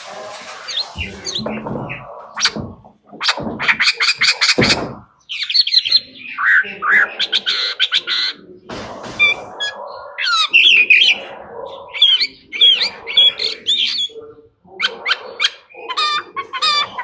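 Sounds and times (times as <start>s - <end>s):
blackbird singing: 0.7s - 17.0s.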